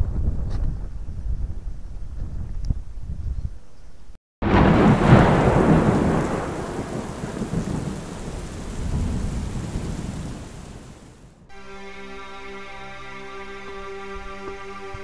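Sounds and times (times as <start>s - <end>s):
thunder crack and rumble: 4.4s - 11.5s.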